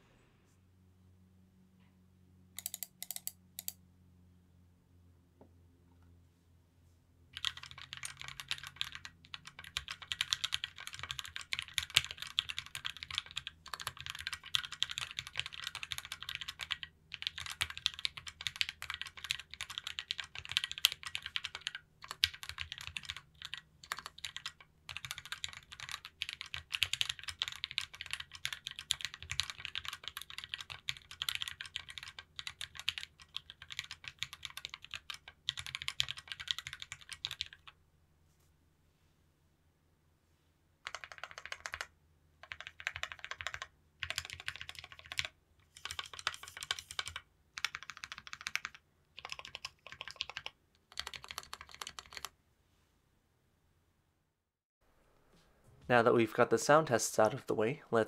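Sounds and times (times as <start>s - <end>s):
mechanical keyboard typing: 2.6s - 3.8s, 7.4s - 37.8s, 40.8s - 52.3s.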